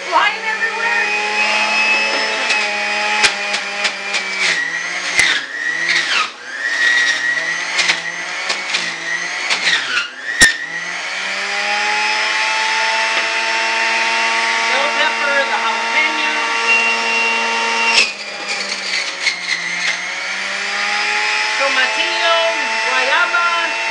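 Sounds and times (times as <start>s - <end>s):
juicer motor hum: 0.0s - 23.9s.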